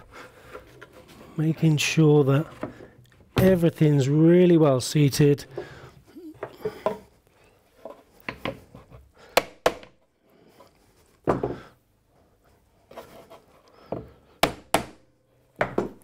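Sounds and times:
wood rubbing: 0.0 - 3.6, 12.3 - 14.2.

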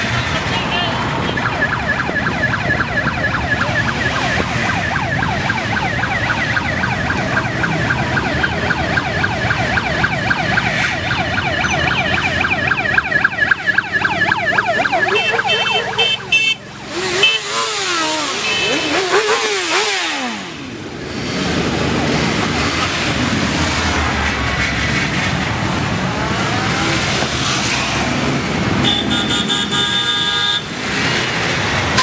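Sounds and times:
motorcycle engines running: 0.0 - 32.0
yelping sirens: 1.0 - 23.8.

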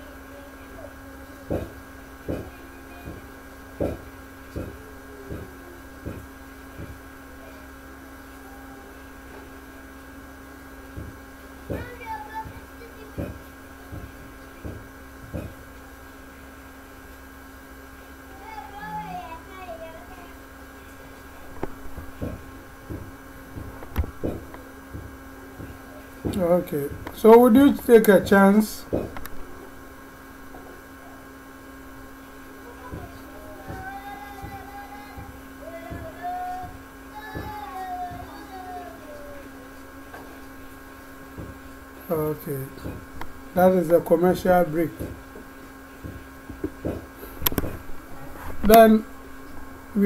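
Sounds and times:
electrical mains hum: 0.0 - 50.0
dull thumps: 1.4 - 7.1, 10.9 - 15.7, 21.5 - 27.5, 28.8 - 29.4, 32.8 - 38.6, 41.3 - 41.7, 42.7 - 43.4, 44.9 - 48.0.

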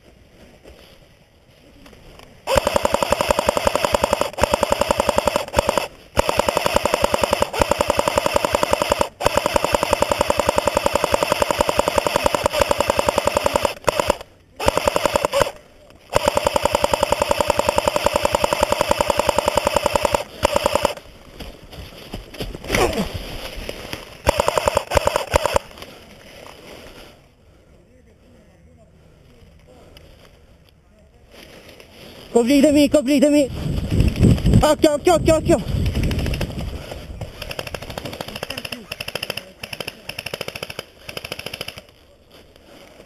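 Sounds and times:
airsoft gun full-auto rattle: 2.4 - 21.1, 23.6 - 25.8, 35.7 - 42.0.

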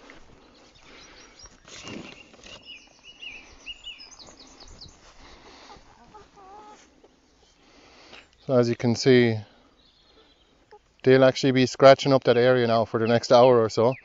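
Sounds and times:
songbird chirping: 0.0 - 14.0
chicken call: 5.6 - 6.9.

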